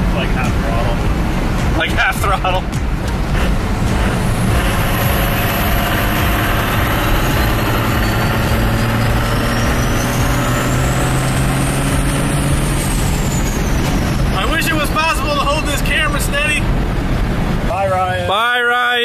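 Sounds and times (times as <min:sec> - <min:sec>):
diesel engine pulling: 0:00.0 - 0:19.0
high turbo whistle: 0:04.2 - 0:14.4.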